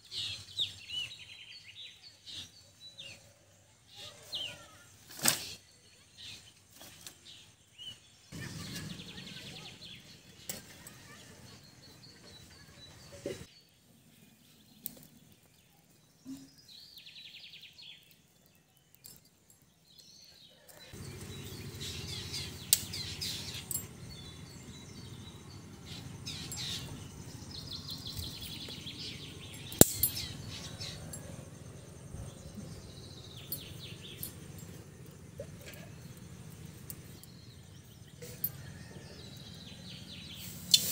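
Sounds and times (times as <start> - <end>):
birds chirping: 0.0 - 40.9
firewood sticks knocking: 29.6 - 30.3.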